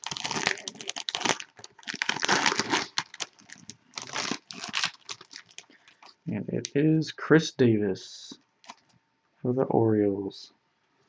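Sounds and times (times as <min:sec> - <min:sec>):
wrapper crinkling and tearing: 0:00.0 - 0:06.2, 0:08.6 - 0:08.9.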